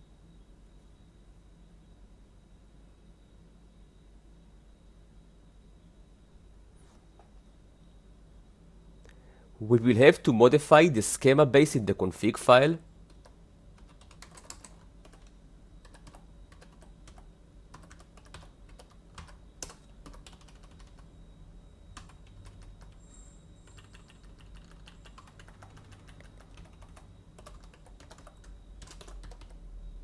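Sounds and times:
computer keyboard typing: 13.0s - 21.1s, 22.0s - 23.0s, 23.6s - 29.6s.

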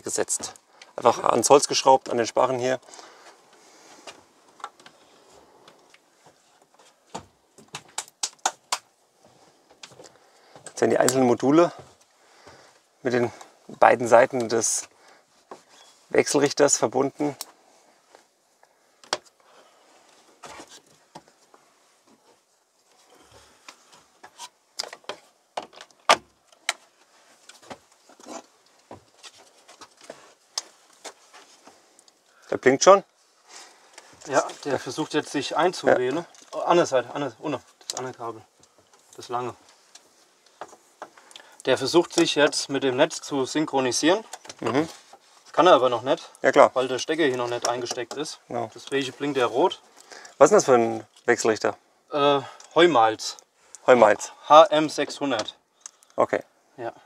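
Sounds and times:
cable rustling: 18.9s - 51.4s.

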